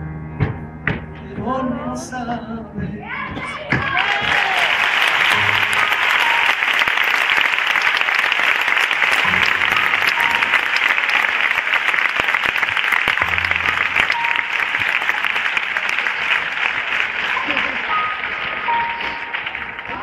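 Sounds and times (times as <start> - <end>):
audience applauding: 3.7 - 20.0
low sustained notes: 13.3 - 15.2.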